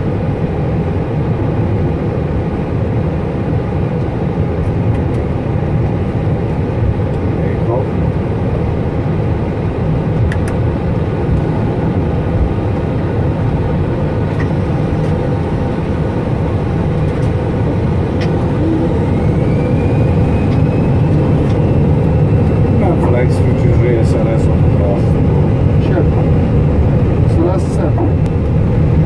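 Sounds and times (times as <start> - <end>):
engines and wheels rumbling: 0.0 - 29.0
faint rising whine: 7.4 - 29.0.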